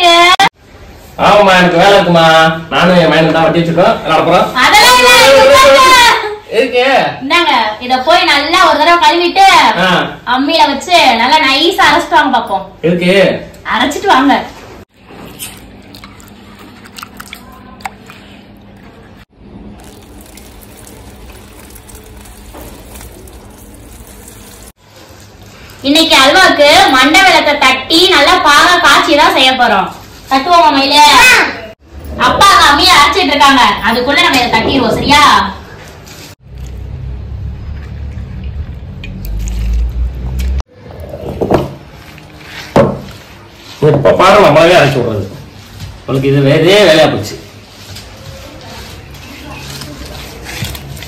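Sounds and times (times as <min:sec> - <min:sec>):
small water splashes: 0:15.4 - 0:18.3
hands swishing lentils in water: 0:19.8 - 0:25.8.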